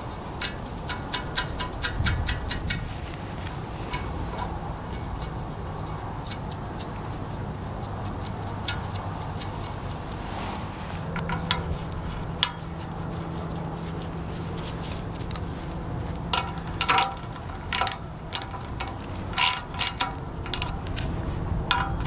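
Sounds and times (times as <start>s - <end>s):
metal hardware clicking: 0.0s - 7.0s, 11.1s - 12.7s, 16.3s - 21.1s, 21.7s - 22.0s
steady low hum: 0.0s - 22.0s.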